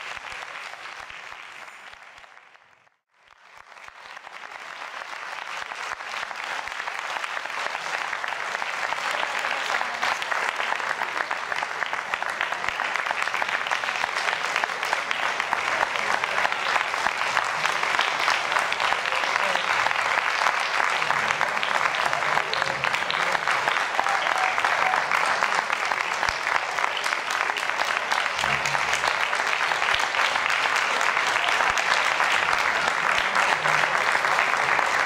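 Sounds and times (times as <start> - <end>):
audience applauding: 0.0 - 35.0.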